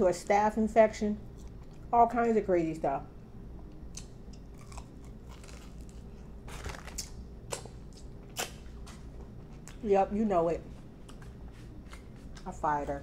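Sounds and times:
close-up chewing crispy food: 1.3s - 2.0s, 3.6s - 9.9s
short crunches: 4.0s - 9.8s.

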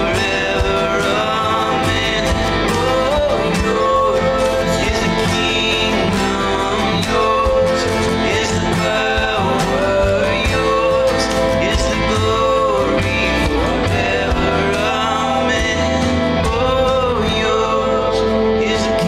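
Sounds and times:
worship song with guitar: 0.0s - 19.0s.

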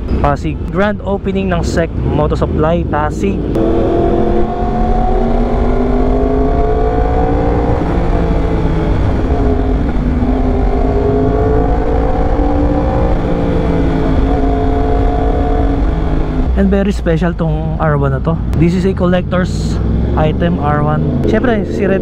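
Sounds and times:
low wind rumble: 0.0s - 22.0s
motorcycle engine at road speed: 2.2s - 16.6s.

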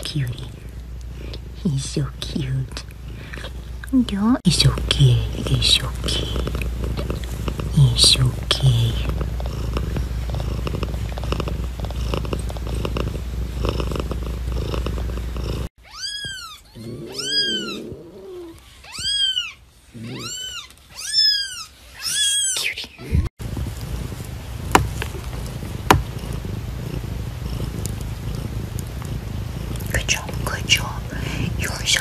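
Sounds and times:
cat purring: 0.0s - 15.7s, 16.8s - 18.6s, 23.0s - 32.0s
kitten crying: 15.8s - 23.2s.

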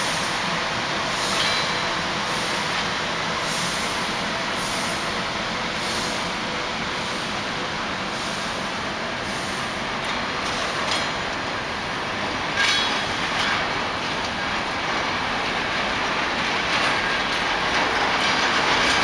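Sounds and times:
freight train rumble and rattle: 0.0s - 19.0s
wheels clicking over rail joints: 9.8s - 19.0s.

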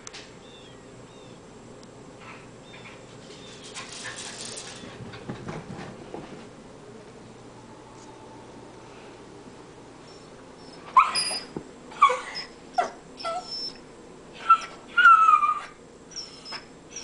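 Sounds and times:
dog whining and whimpering: 10.0s - 13.8s, 14.4s - 17.0s.

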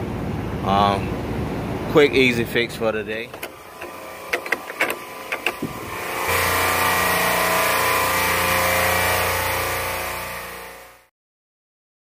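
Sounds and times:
sharp clicks: 3.3s - 5.7s
loud drone with held tones: 3.4s - 11.1s.

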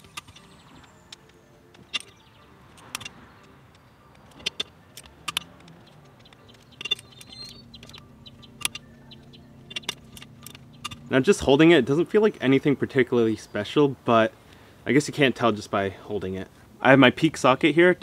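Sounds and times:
torque wrench metallic clicks: 1.1s - 8.9s, 9.6s - 11.1s.

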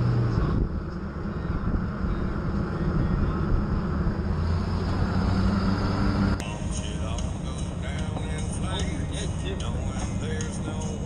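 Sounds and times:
car engine drone: 0.0s - 11.0s.

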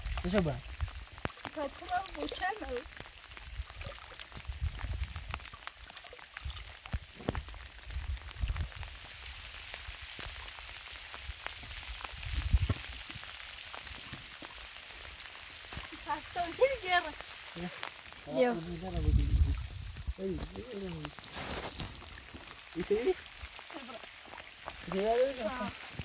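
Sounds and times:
light rain pattering: 0.0s - 26.0s
low rumbles on microphone: 18.9s - 20.5s.

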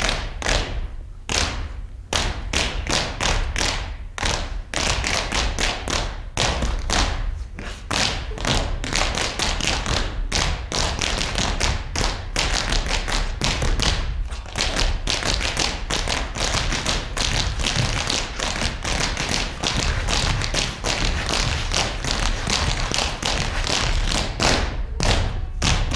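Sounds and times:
feet stamping on stage floor: 0.0s - 25.9s.

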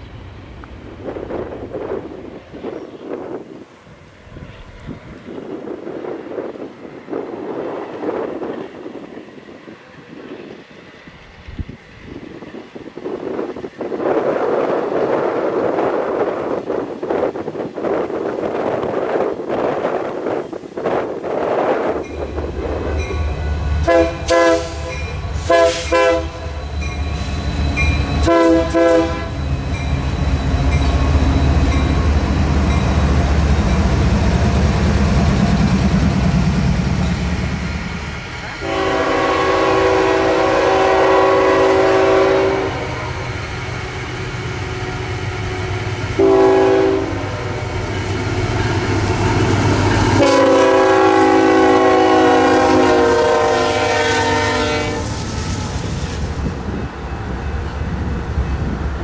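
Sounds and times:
locomotive engine rumble: 21.9s - 59.0s
train air horn blasts: 22.8s - 27.3s, 28.2s - 29.5s, 38.6s - 43.3s, 44.5s - 47.8s, 50.0s - 55.7s.

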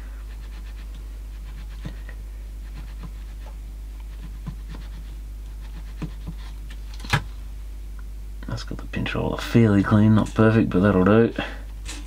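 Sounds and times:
steady low hum: 0.0s - 12.0s
cotton swab rubbing roller: 0.3s - 6.6s.

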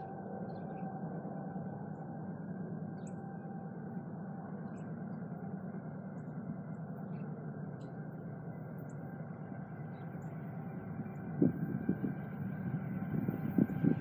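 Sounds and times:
distant diesel locomotive rumble: 8.2s - 14.0s.

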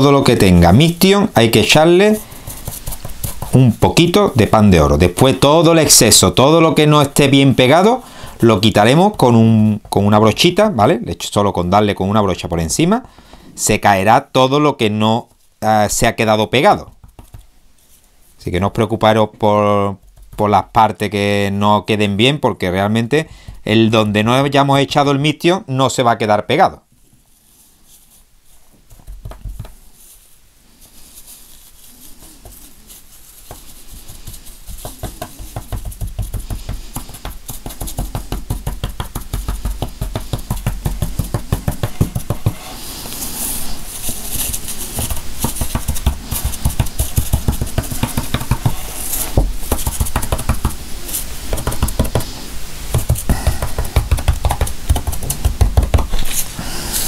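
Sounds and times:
rapid light tapping: 0.0s - 10.4s, 16.5s - 17.6s, 19.9s - 20.8s, 28.8s - 30.3s, 31.2s - 42.8s, 43.6s - 56.4s.

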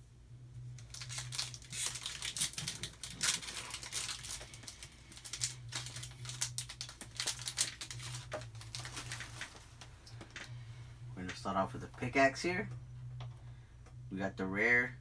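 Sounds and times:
steady low hum: 0.0s - 15.0s
foil wrapper crinkling and tearing: 0.8s - 10.5s.

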